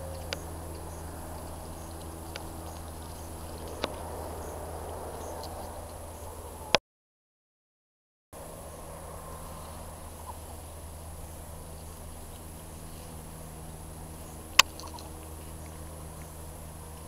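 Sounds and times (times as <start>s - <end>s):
faint ticks: 0.0s - 4.0s.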